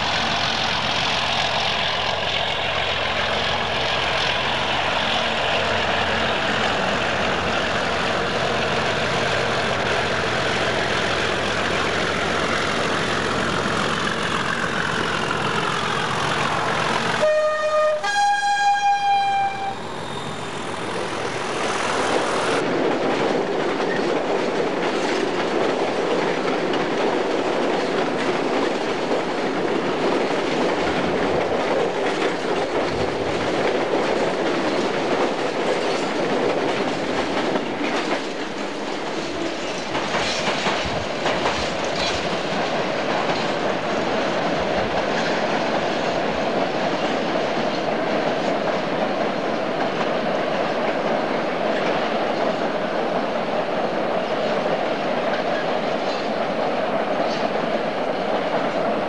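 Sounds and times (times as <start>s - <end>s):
diesel locomotive engine passing: 0.0s - 59.0s
two-tone train horn: 17.2s - 19.8s
freight wagons clattering over rail joints: 22.8s - 50.2s.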